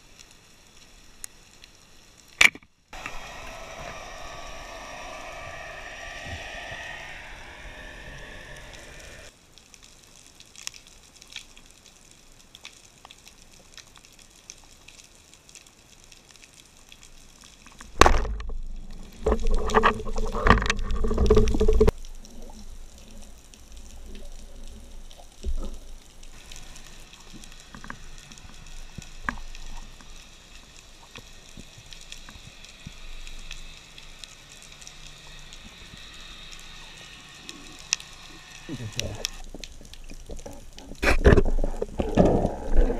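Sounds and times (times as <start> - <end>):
underwater wash: 2.9 - 9.3, 14.4 - 42.9
water churning and splashing: 38.8 - 42.9.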